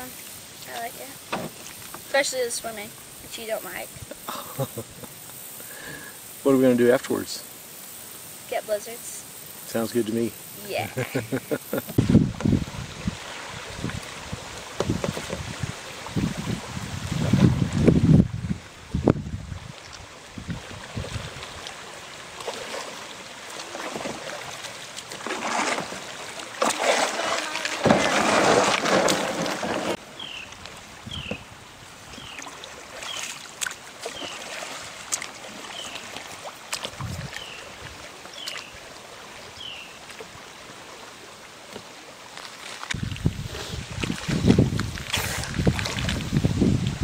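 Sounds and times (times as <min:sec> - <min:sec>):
kayak paddle strokes: 0:10.5 - 0:47.0
water splashing around hull: 0:10.8 - 0:47.0.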